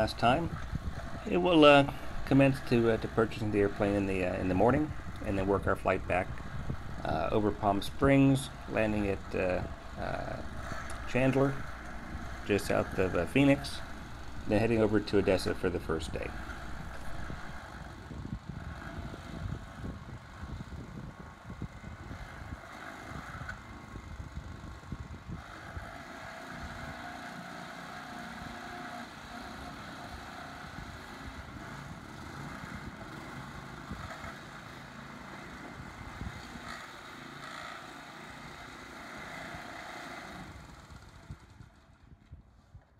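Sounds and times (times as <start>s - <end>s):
aircraft tug motor running: 0.0s - 42.9s.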